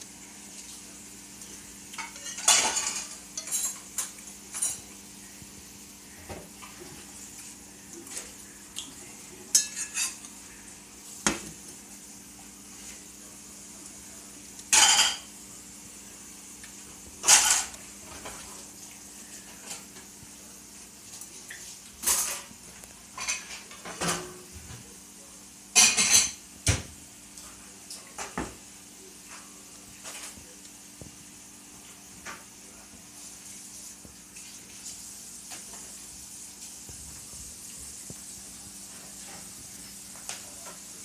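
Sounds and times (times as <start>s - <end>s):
dishes and cutlery clattering: 1.9s - 5.0s, 9.5s - 10.3s, 14.7s - 15.3s, 17.2s - 18.5s, 22.0s - 24.6s, 25.7s - 26.8s.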